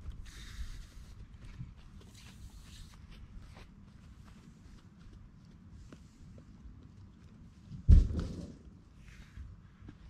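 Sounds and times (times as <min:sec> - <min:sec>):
footsteps on grass: 0:00.0 - 0:06.5.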